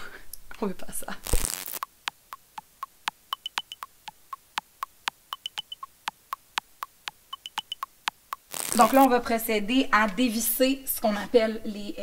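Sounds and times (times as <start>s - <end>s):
electronic ticking beat: 1.2s - 9.1s
quick high beeps: 3.3s - 4.0s, 5.3s - 6.0s, 7.3s - 9.1s.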